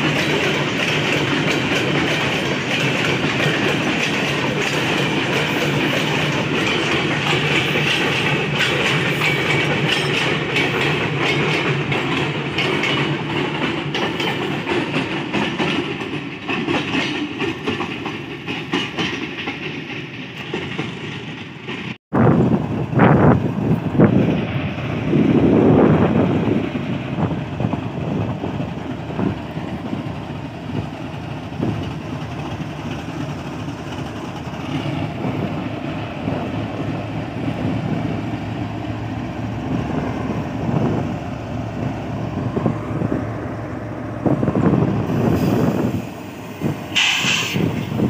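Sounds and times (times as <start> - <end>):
train wheels knocking on rails: 0.0 - 22.0
diesel locomotive engine rumble: 0.0 - 48.0.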